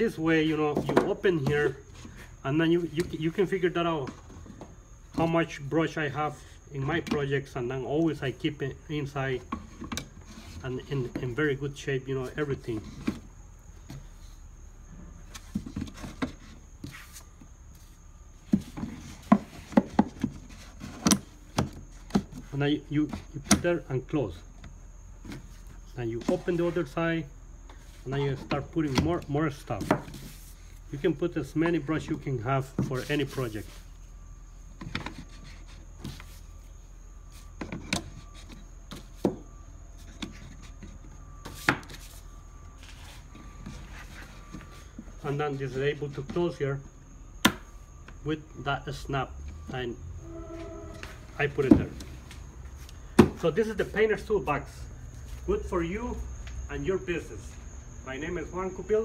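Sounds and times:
short scrape: 50.2 - 51.6.

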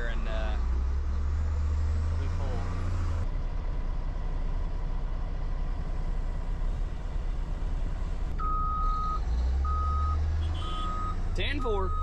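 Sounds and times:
diesel truck engine idling: 0.0 - 12.0
backup alarm beeping: 8.4 - 12.0.

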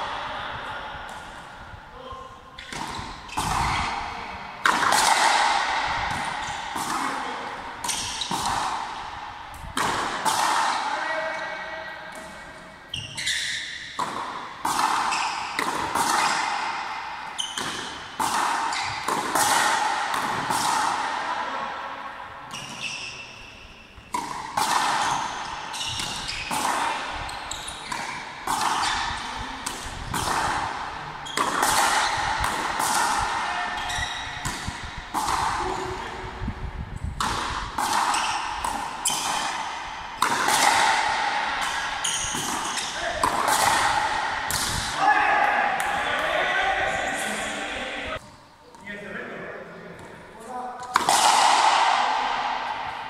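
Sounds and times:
racquets striking rubber ball: 2.6 - 10.8, 13.8 - 21.2, 24.0 - 36.0, 37.2 - 45.0.

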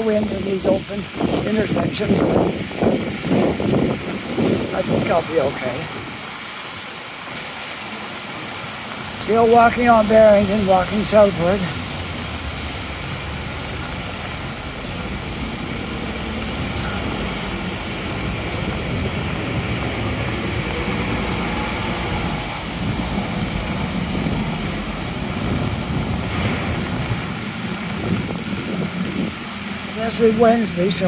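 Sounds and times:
bus engine rumbling: 0.0 - 31.0
rain hiss: 0.0 - 31.0
traffic on wet street: 0.0 - 31.0.

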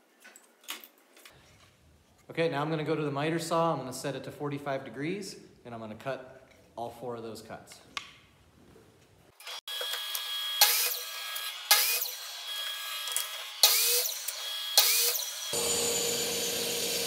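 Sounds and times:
saw blade cutting wood: 9.4 - 17.0
saw whine: 9.4 - 17.0.

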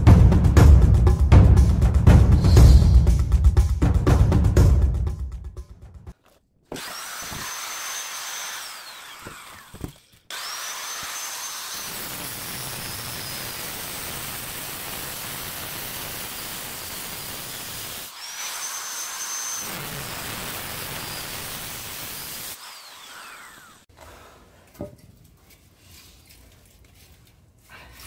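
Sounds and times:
angle grinder cutting metal: 6.7 - 23.9.

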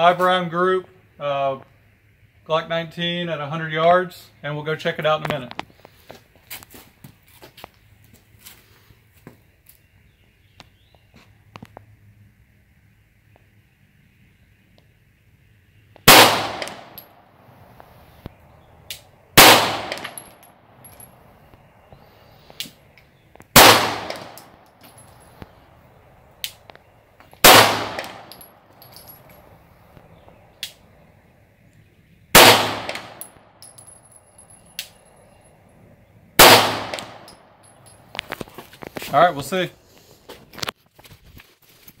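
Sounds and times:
pistol shots with echo: 16.1 - 17.2, 19.4 - 20.4, 23.5 - 24.6, 27.4 - 28.5, 32.3 - 33.4, 36.4 - 37.6.

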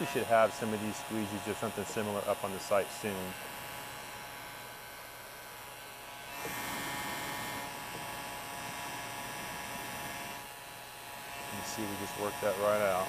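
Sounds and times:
heat gun fan hum and whine: 0.0 - 13.0.

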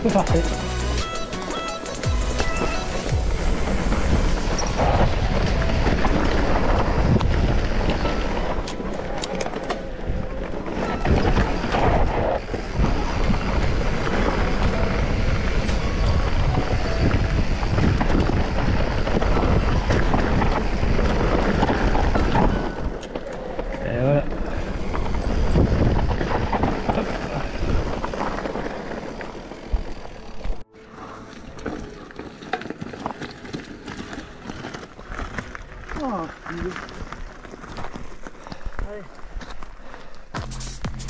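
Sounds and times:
bike knocks and rattles: 0.0 - 30.6
bike tyres rumbling on trail: 0.0 - 40.4
wind on microphone: 3.1 - 8.6, 9.9 - 23.0, 24.3 - 29.0.

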